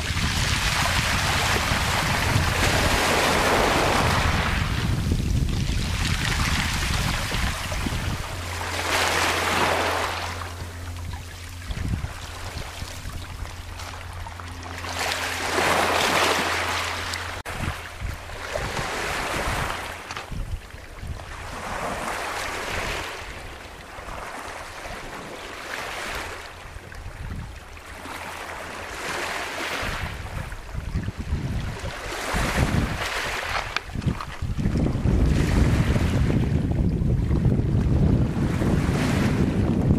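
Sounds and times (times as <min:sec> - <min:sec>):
waves washing over pebbles: 0:00.0 - 0:20.6, 0:31.3 - 0:36.2
wind rumble on microphone: 0:00.0 - 0:39.9.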